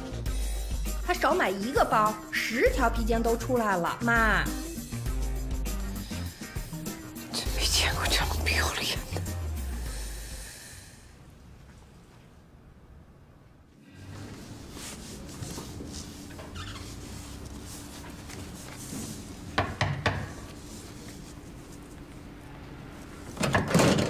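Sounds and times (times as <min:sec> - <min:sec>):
knuckles knocking on wooden door: 0:19.6 - 0:20.3.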